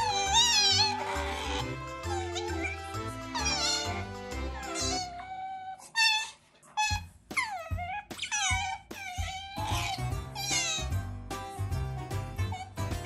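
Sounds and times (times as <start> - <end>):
background music with beat: 0.0 - 5.1, 7.0 - 13.0
otters squeaky calls: 0.0 - 5.2, 5.8 - 11.0.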